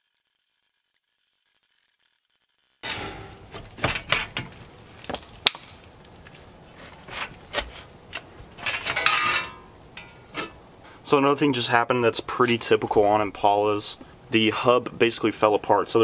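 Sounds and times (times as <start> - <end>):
metal knocks and clanks: 2.8 - 5.3, 6.9 - 10.6.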